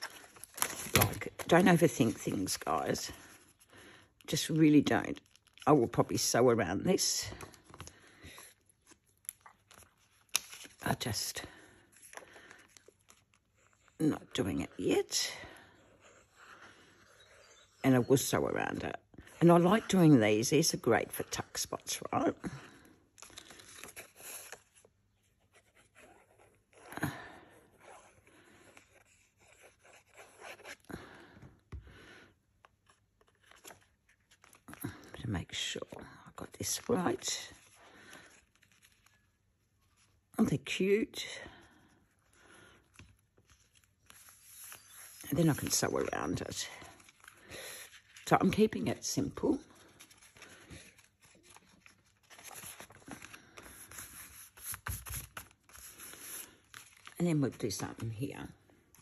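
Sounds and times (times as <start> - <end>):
card rustling and scraping: 0.0 - 3.7, 7.5 - 11.2, 23.2 - 26.9, 42.9 - 48.6, 49.7 - 58.1.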